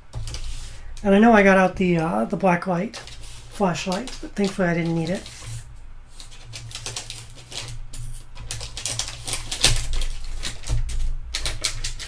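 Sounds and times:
packing paper crinkling: 2.8s - 12.0s.

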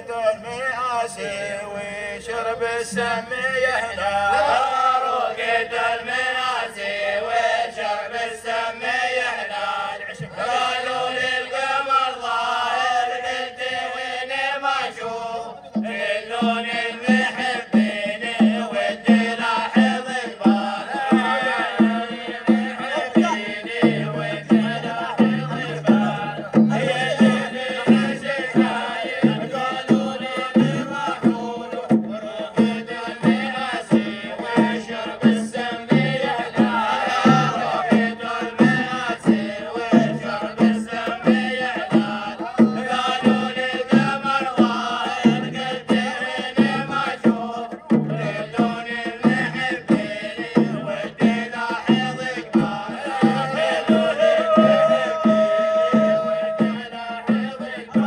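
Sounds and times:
men singing a chant: 0.0s - 58.0s
drum beat: 15.8s - 58.0s.

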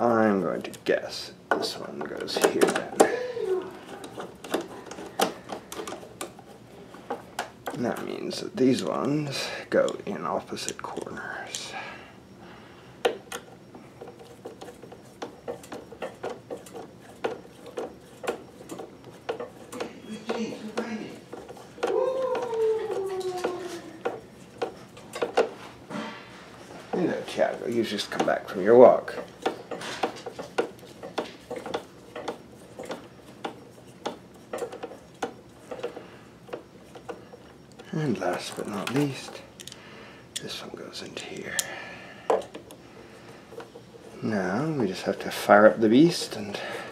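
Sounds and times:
screwdriver clicking on metal: 3.8s - 6.4s, 27.5s - 42.8s
screwdriver metallic clicks: 39.6s - 39.8s.

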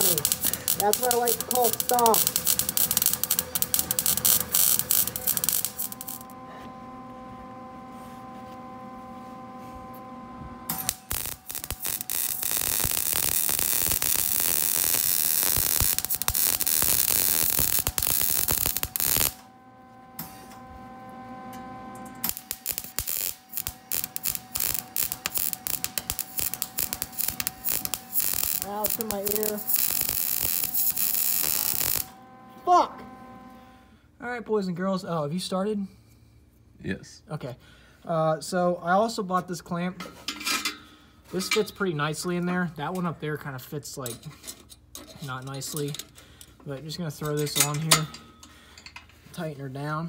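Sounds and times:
welder arc crackling: 0.0s - 6.4s, 10.7s - 19.5s, 22.0s - 33.6s
steady hum: 0.0s - 36.6s.

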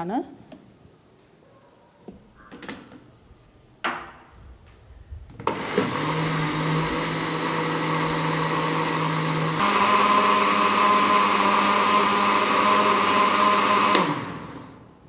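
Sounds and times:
electric blender motor hum: 5.4s - 14.9s.

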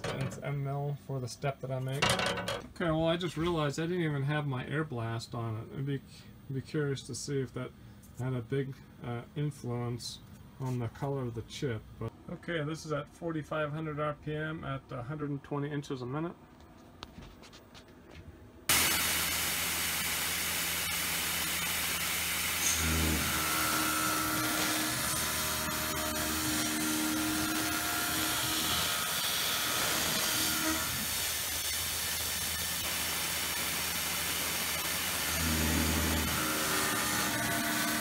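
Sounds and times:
machine hum: 18.7s - 38.0s
mill cutting steel: 18.7s - 38.0s.

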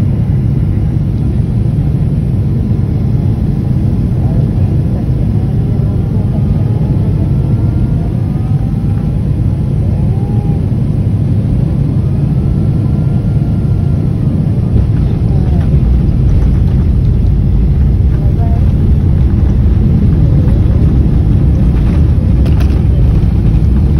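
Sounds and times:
airliner engines rumbling: 0.0s - 23.9s
wheels rumbling on runway: 14.0s - 23.9s.

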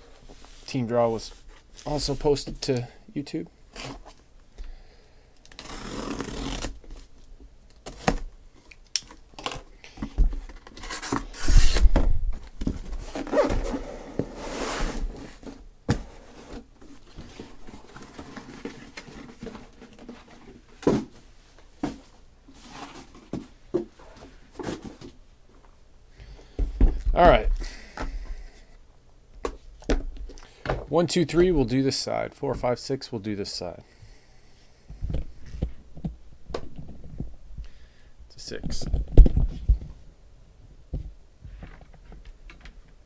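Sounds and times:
packing tape tearing: 5.4s - 6.9s, 10.6s - 11.9s.

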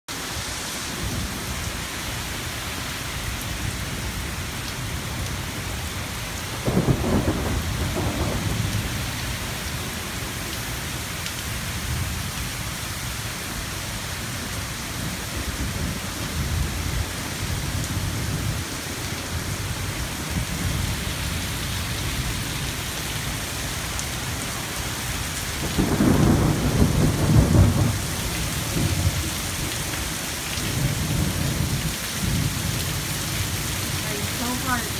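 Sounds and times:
steady rain hissing: 0.1s - 34.9s
low rumbling thunder: 6.4s - 9.6s, 25.5s - 30.0s, 30.6s - 33.0s.

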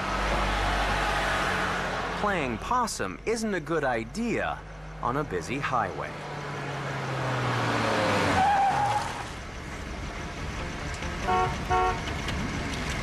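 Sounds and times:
car driving up: 0.0s - 13.0s
car horn honks: 11.0s - 12.1s.

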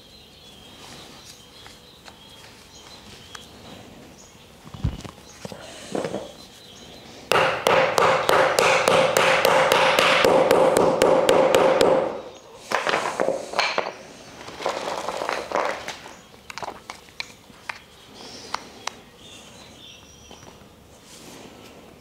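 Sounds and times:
mallet knocking on wood: 7.3s - 12.2s.

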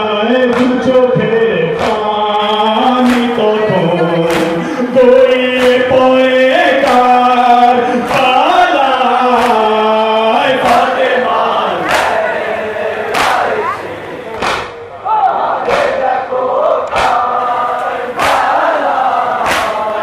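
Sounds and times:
man singing a lament: 0.0s - 14.4s
mourners singing along: 0.0s - 20.0s
hands slapping chests: 3.0s - 3.4s, 4.3s - 4.6s, 11.9s - 12.2s, 13.1s - 13.5s, 14.4s - 14.8s, 16.8s - 17.2s, 18.2s - 18.5s, 19.4s - 19.8s.

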